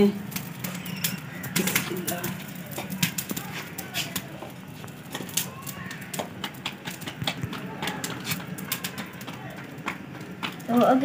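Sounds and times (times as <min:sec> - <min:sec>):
sharp clicks and taps: 0:00.3 - 0:10.9
faint bird calls: 0:00.6 - 0:02.2.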